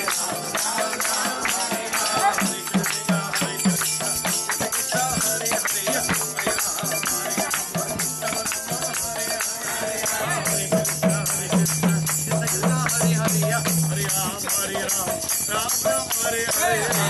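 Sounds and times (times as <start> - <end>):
hands clapping: 0.0 - 9.6, 10.8 - 13.3
jingle tambourine rhythm: 0.0 - 17.0.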